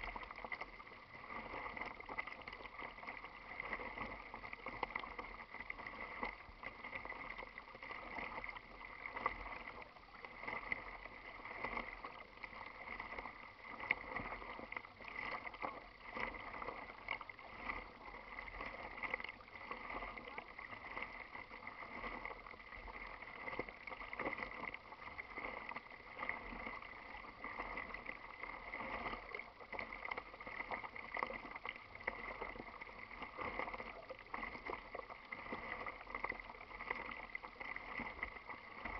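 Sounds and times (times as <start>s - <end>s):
water lapping against kayak hull: 0.0s - 38.9s.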